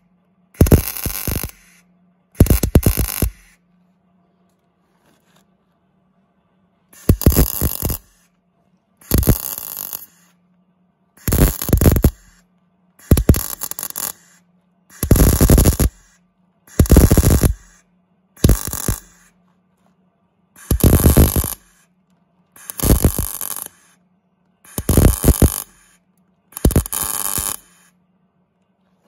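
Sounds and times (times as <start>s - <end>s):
faint low hum: 0.0s - 29.0s
welding arc crackling: 0.6s - 1.8s, 2.4s - 3.5s, 7.0s - 8.2s, 9.0s - 10.3s, 11.2s - 12.4s, 13.0s - 17.8s, 18.4s - 19.3s, 20.6s - 21.8s, 22.6s - 24.0s, 24.7s - 26.0s, 26.6s - 27.9s.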